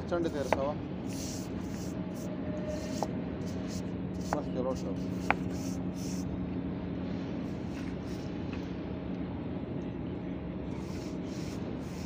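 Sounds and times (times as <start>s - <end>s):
stiff brush scrubbing concrete: 0.3s - 6.2s.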